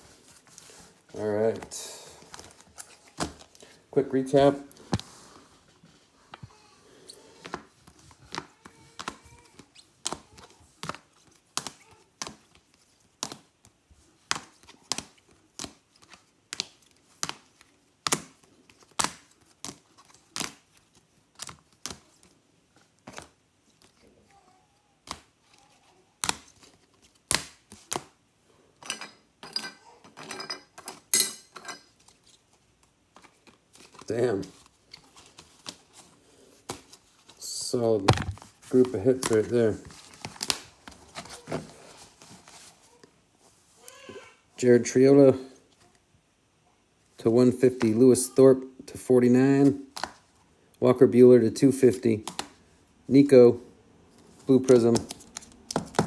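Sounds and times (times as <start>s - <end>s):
plastic sleeves crinkling: 0.0s - 28.2s, 31.9s - 44.3s, 54.0s - 56.0s.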